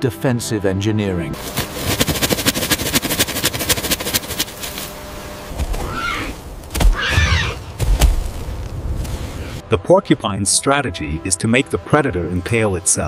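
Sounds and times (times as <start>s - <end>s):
porcupine quills rattling: 1.4s - 7.1s.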